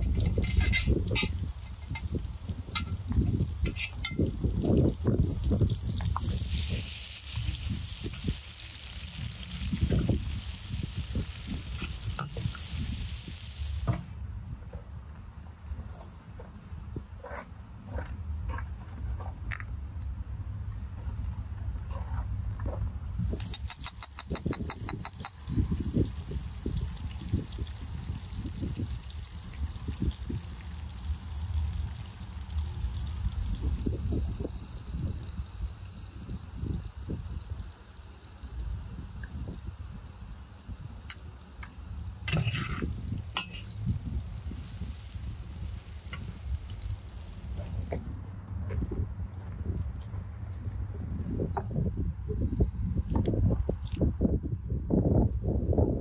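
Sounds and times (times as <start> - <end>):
food sizzling over fire: 0.0 - 14.2, 23.2 - 48.4.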